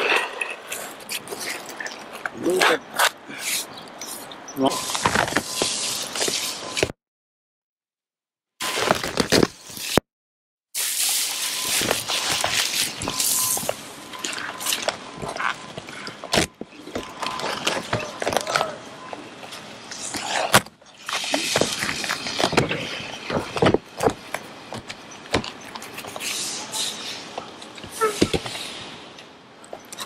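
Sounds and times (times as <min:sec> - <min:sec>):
plastic film crinkling: 0:10.9 - 0:13.8
hands rubbing and scraping sheet: 0:25.8 - 0:27.3.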